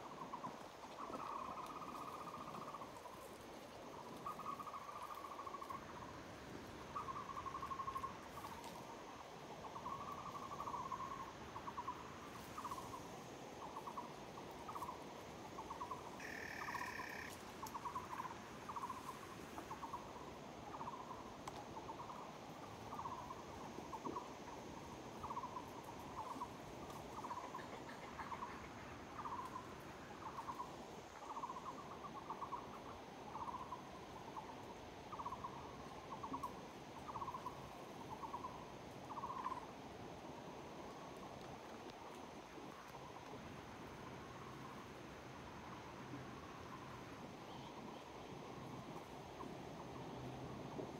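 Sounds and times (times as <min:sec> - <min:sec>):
animal buzzy call: 0:16.2 - 0:17.4.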